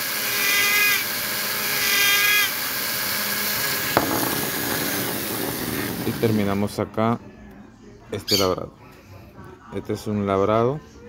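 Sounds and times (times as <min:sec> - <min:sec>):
sharp knock: 0:03.8 - 0:06.7.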